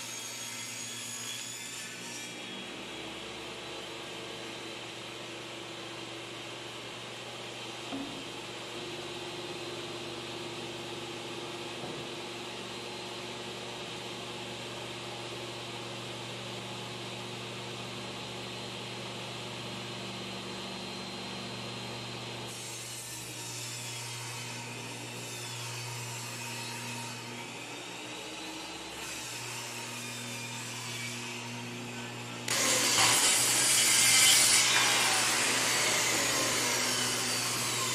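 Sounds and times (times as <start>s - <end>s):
table saw running: 20.7s - 37.9s
saw blade cutting plywood: 28.9s - 37.9s.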